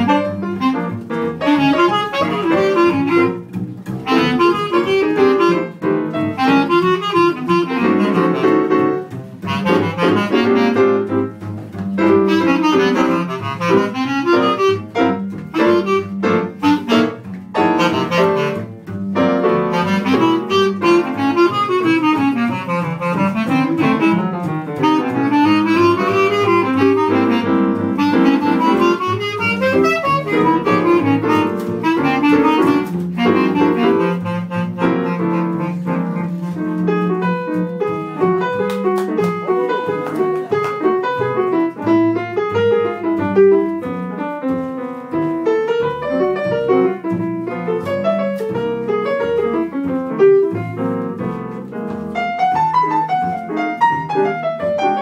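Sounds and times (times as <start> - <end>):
tenor saxophone: 0.0 - 11.4, 12.0 - 38.5
bass clarinet: 0.0 - 55.0
double bass: 0.0 - 55.0
piano: 0.0 - 55.0.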